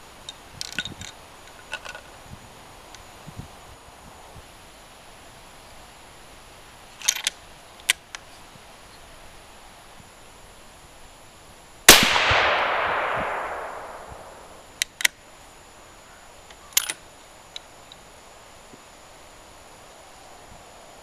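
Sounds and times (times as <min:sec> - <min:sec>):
rifle shot with echo: 0:11.9 - 0:14.6.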